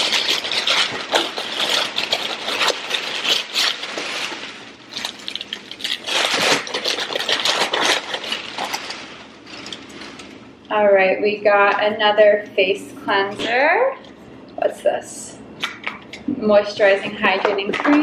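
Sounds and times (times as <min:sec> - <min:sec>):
packing paper rustling: 0:00.0 - 0:10.6.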